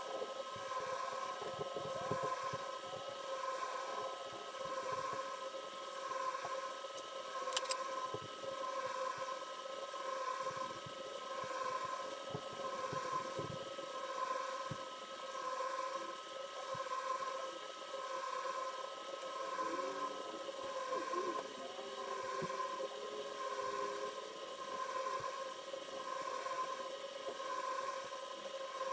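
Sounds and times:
machine hum: 0.0s - 28.9s
sharp click: 7.5s - 7.8s.

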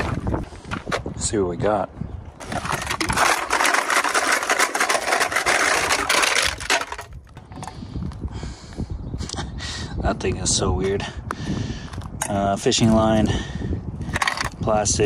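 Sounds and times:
metal cans clattering onto gravel: 0.0s - 0.4s, 2.4s - 7.8s, 14.1s - 14.6s.

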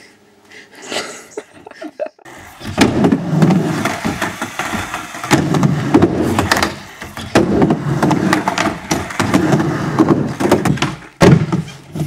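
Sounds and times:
skateboard wheels rolling: 2.3s - 12.0s
skateboard clacks: 2.5s - 12.0s.

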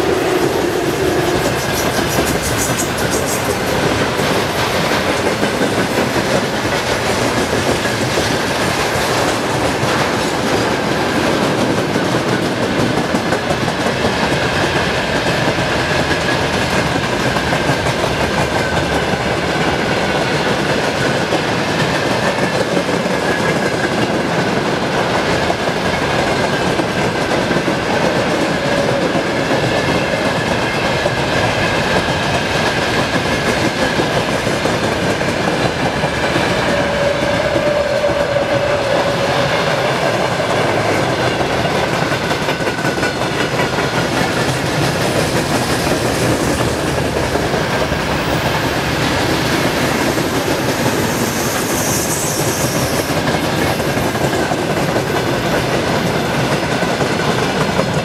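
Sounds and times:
train wheels clattering on rails: 0.0s - 58.0s.

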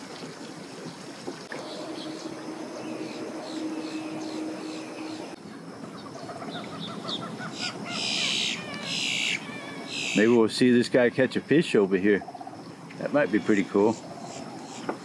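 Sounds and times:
birds chirping: 1.5s - 10.4s
harsh bird calls: 1.6s - 10.4s, 12.2s - 14.9s.

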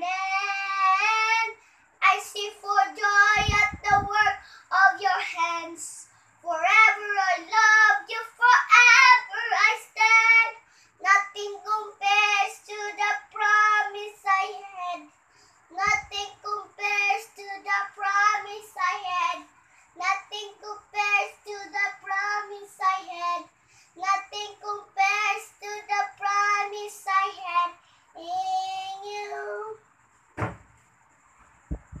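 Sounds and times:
girl singing unaccompanied: 0.0s - 29.9s
thump: 30.4s - 30.8s.

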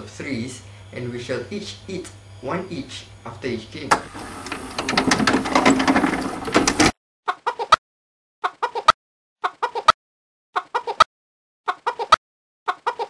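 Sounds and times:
chicken clucking: 7.3s - 7.8s, 8.4s - 10.0s, 10.6s - 11.1s, 11.7s - 13.0s.

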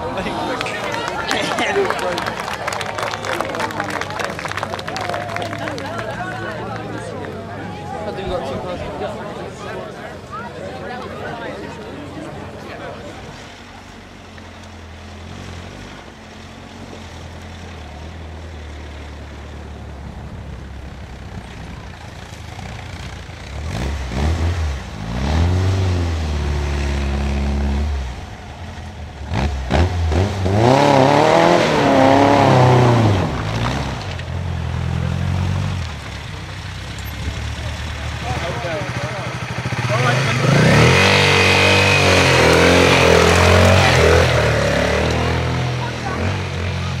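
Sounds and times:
car engine revving hard: 23.4s - 28.3s, 29.2s - 34.2s, 39.5s - 47.0s.

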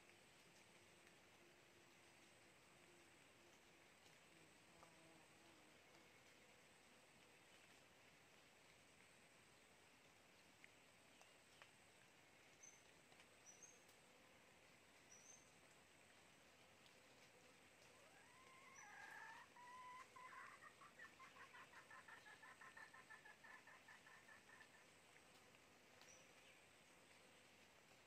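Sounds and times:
chicken clucking: 19.2s - 24.8s.

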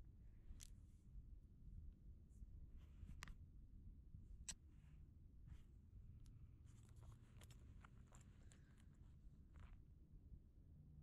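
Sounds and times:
handling clicks and scratches: 6.7s - 9.8s.

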